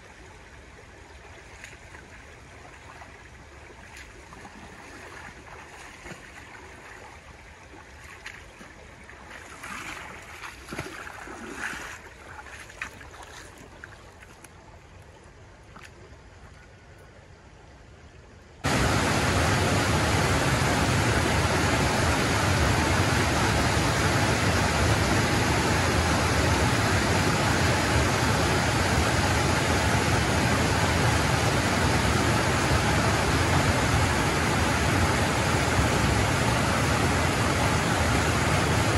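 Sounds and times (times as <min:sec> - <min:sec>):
water rushing over a weir: 0:00.0 - 0:14.4, 0:18.6 - 0:38.9
water sloshing around wading legs: 0:00.8 - 0:17.2
splashing steps: 0:01.4 - 0:16.6.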